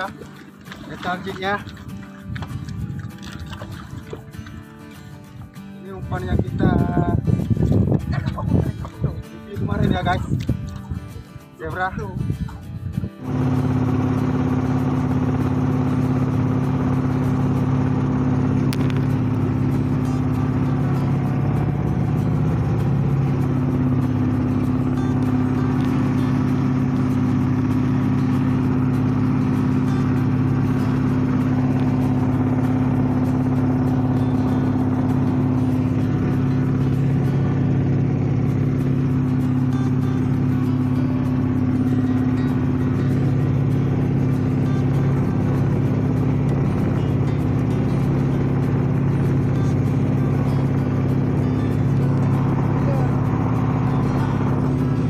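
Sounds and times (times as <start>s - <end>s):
boat engine humming: 0.0s - 55.0s.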